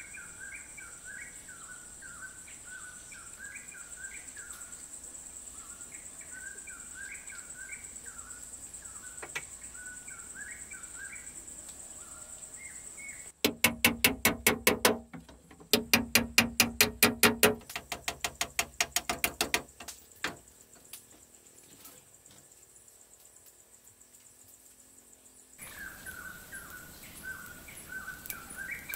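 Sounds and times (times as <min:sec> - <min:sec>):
high insect buzz: 0:12.5 - 0:28.9
hard knocks from hand tool: 0:13.4 - 0:20.4
birds chirping: 0:25.6 - 0:28.9.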